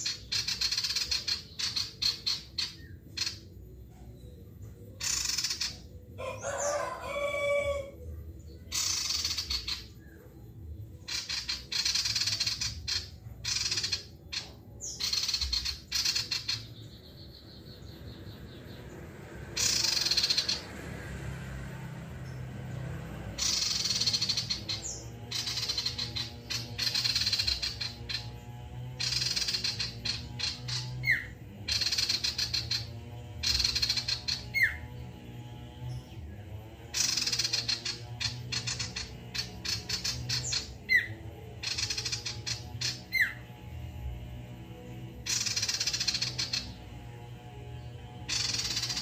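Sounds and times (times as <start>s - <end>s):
bird singing chattering bursts: 0.0s - 3.8s, 4.9s - 6.0s, 8.6s - 10.2s, 10.9s - 18.9s, 19.5s - 20.8s, 23.3s - 35.0s, 36.9s - 43.5s, 45.3s - 47.0s, 48.2s - 49.0s
rooster crowing: 6.2s - 8.1s.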